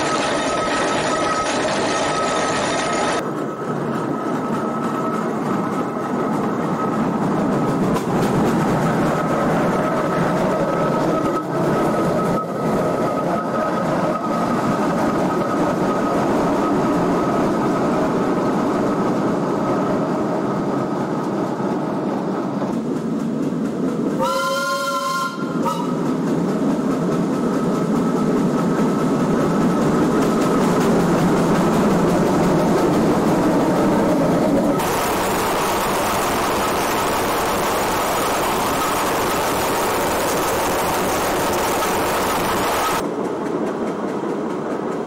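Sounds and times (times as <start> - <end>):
steam whistle blowing: 24.2 - 26.0.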